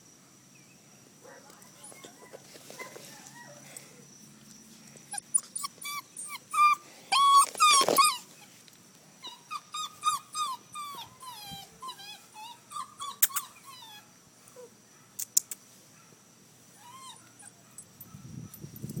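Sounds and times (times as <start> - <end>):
puppy whining: 1.8 - 3.7, 5.1 - 8.5, 9.2 - 14.7, 16.8 - 17.6.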